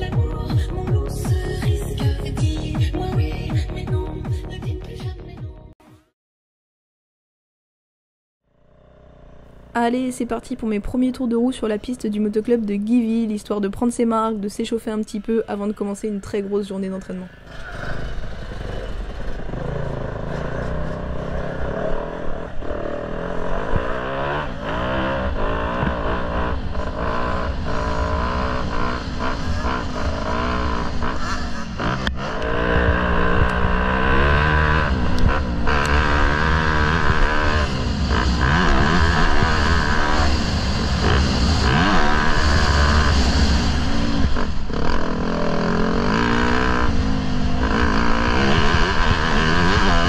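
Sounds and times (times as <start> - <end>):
dirt bike engine revving: 8.5 - 13.2, 17.3 - 50.0.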